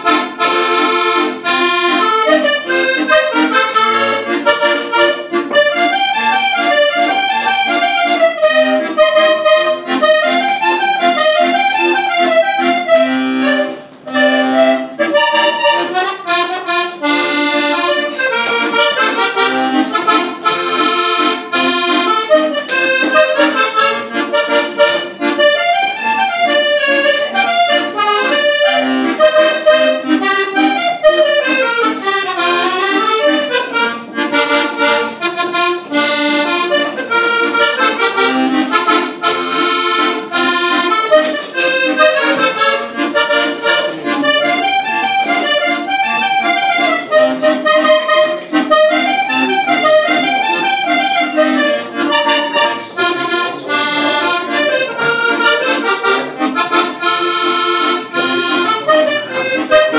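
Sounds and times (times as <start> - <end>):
piano accordion melody: 0.0 - 59.9.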